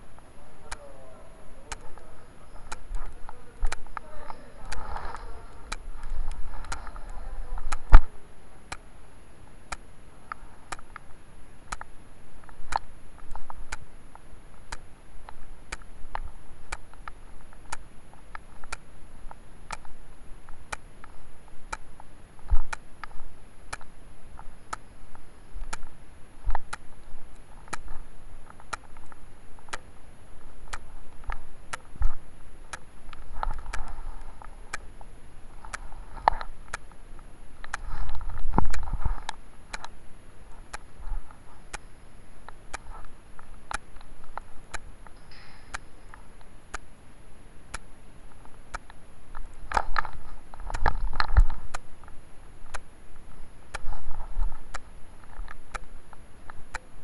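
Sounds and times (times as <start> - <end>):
muffled voices: 0.2 - 8.7
sharp ticking clicks: 1.7 - 8.1, 8.7 - 57.0.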